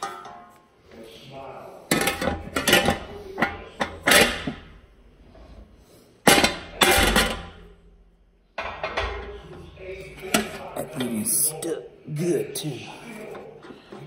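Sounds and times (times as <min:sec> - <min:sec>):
metal tools clinking and clunking: 0:00.0 - 0:00.6.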